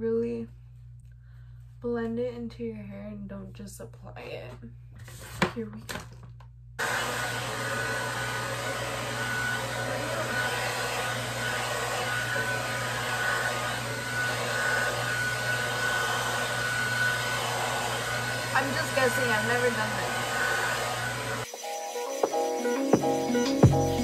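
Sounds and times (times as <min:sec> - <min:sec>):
hair dryer running: 0:06.8 - 0:21.5.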